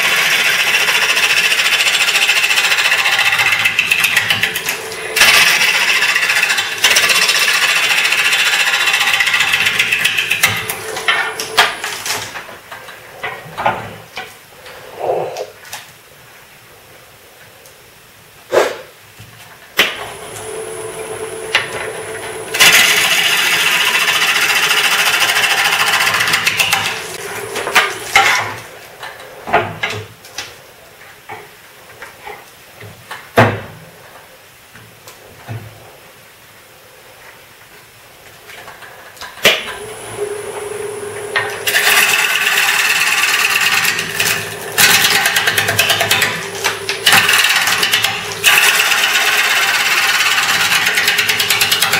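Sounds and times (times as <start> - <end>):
lathe motor hum: 0.0 - 12.1, 20.0 - 28.2, 39.7 - 51.9
gouge cutting wood on lathe: 0.0 - 12.2, 20.0 - 28.3, 39.8 - 51.9.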